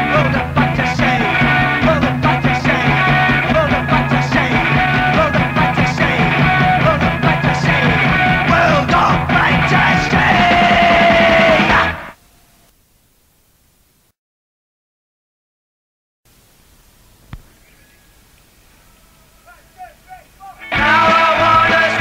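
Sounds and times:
punk rock band playing: 0.0s - 12.1s, 20.5s - 22.0s.

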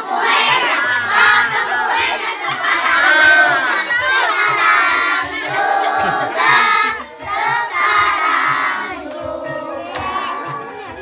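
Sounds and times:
children singing: 0.0s - 11.0s
hand claps: 9.1s - 10.7s.

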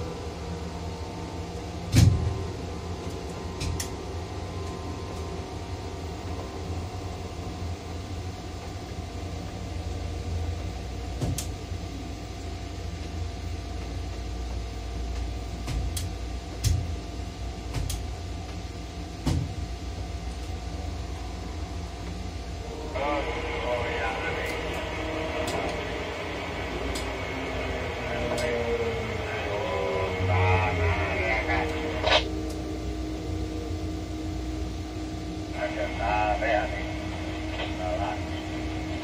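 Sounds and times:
crane electric drive drone: 0.0s - 39.0s
steady tones: 19.9s - 39.0s.

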